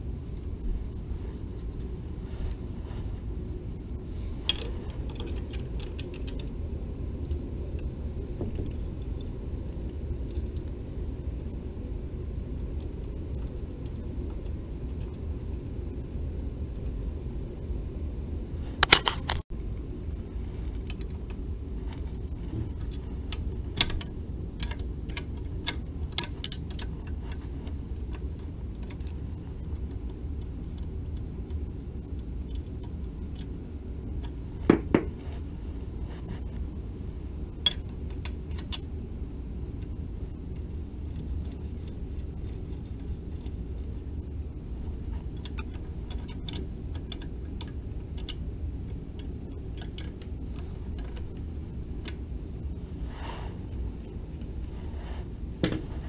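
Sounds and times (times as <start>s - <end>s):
low background rumble: 0.0s - 56.0s
metal parts clicking and clinking: 4.4s - 6.5s, 18.8s - 19.4s, 20.6s - 33.6s, 45.2s - 52.2s.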